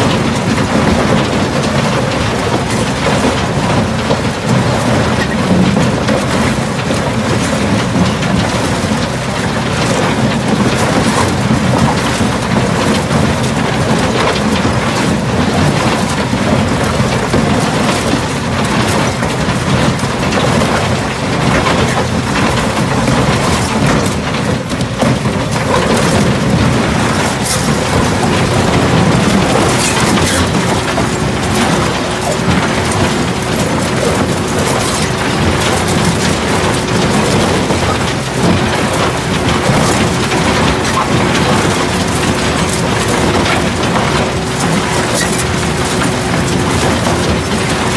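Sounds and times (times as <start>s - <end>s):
machine hum: 0.0s - 47.9s
shaft crusher crunching concrete: 16.0s - 47.9s.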